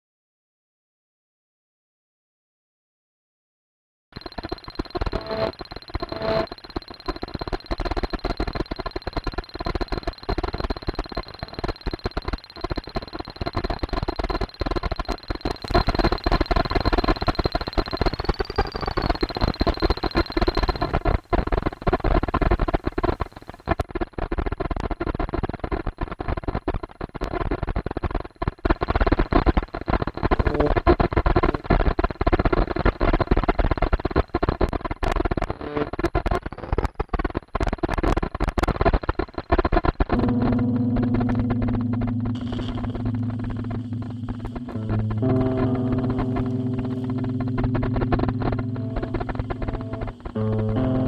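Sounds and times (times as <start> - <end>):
crackling noise with sharp clicks: 4.1 - 51.0
high thin tone: 40.2 - 51.0.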